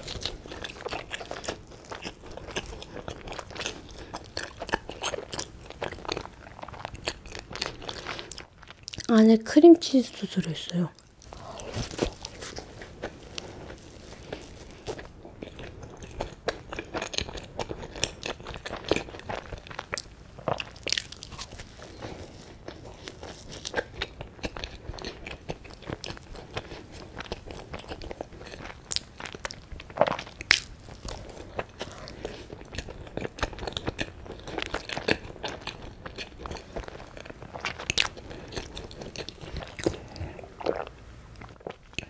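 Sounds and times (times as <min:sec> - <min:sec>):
chewing soft bread: 0:00.0 - 0:09.1, 0:10.6 - 0:42.0
soft crunches: 0:11.2 - 0:15.8, 0:20.6 - 0:23.9.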